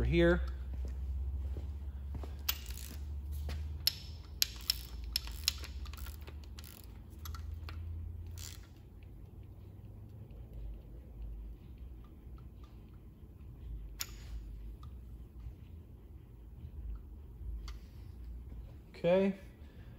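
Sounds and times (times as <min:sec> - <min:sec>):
low steady hum: 0:00.0 - 0:19.9
ratchet clicking: 0:02.4 - 0:09.1, 0:13.8 - 0:15.0.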